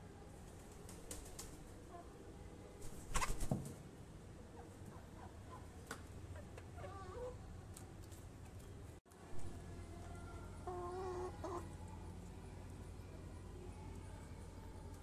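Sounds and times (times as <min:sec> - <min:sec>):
hens clucking: 0:10.6 - 0:11.8.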